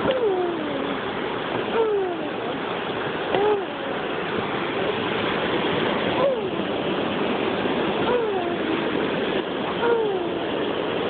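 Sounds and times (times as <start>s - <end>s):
boy making falling vocal sounds: 0.0s - 1.0s, 1.7s - 2.4s, 3.4s - 3.9s, 6.2s - 6.6s, 8.1s - 8.6s, 9.8s - 10.4s
steady rushing noise: 0.0s - 11.0s.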